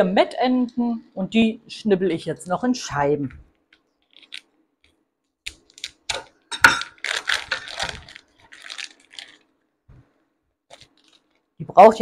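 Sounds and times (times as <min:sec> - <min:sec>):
plastic packaging crinkling: 0:03.7 - 0:04.5, 0:05.5 - 0:09.7, 0:10.7 - 0:11.6.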